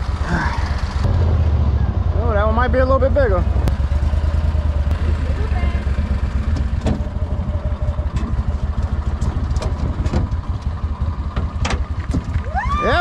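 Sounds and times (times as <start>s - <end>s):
outboard motor running: 3.1s - 13.0s.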